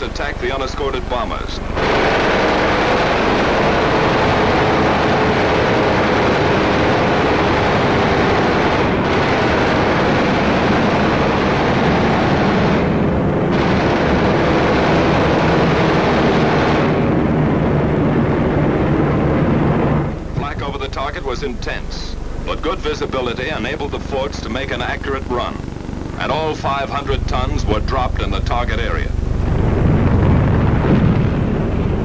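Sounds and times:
aircraft engines: 0.0 - 32.0
gunfire: 1.3 - 21.1.

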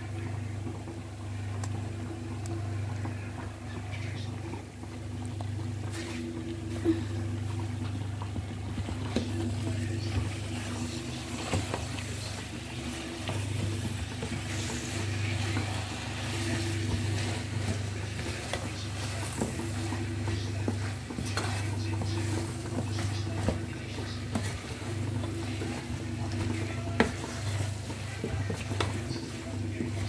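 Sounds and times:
food sizzling: 5.2 - 30.0
wooden spoon scraping a saucepan: 8.8 - 30.0.

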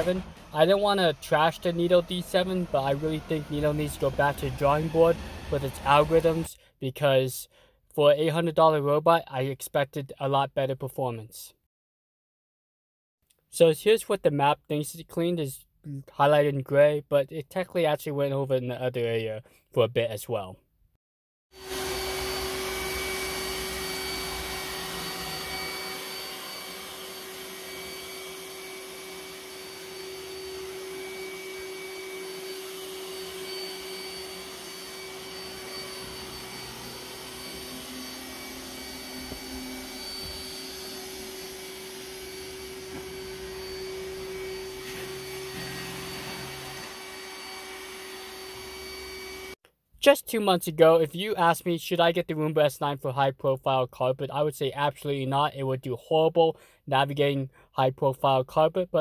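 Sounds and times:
robot vacuum whirring: 0.0 - 6.5, 21.6 - 49.6.

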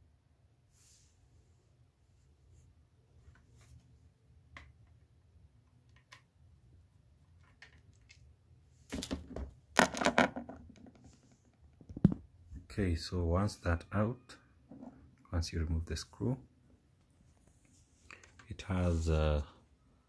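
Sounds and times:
plastic unit rustling and knocking: 8.9 - 12.3.

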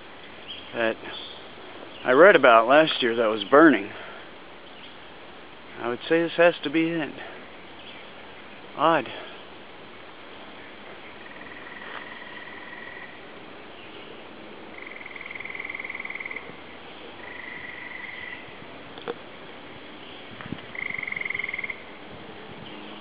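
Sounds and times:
animal calling in pulsed trills: 11.1 - 13.2, 14.7 - 16.6, 17.2 - 18.6, 20.7 - 21.9.

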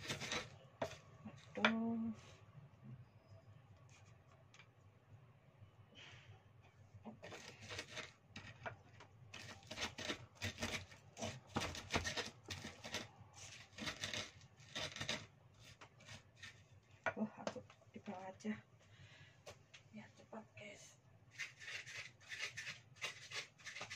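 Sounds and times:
pestle grinding spices in mortar: 0.0 - 1.8, 9.4 - 16.6, 21.4 - 23.9.

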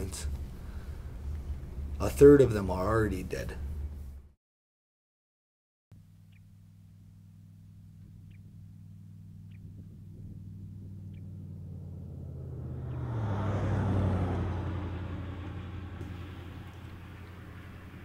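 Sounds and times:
vehicle engine driving past: 7.9 - 18.0.

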